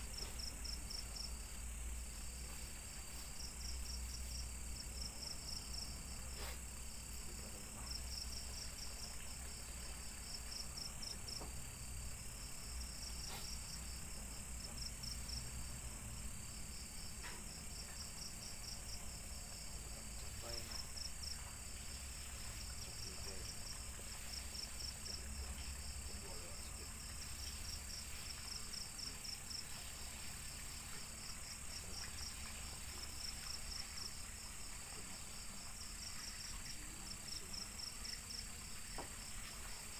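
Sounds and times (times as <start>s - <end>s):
crickets chirping: 0.0s - 39.9s
high-pitched insect trill: 0.0s - 39.9s.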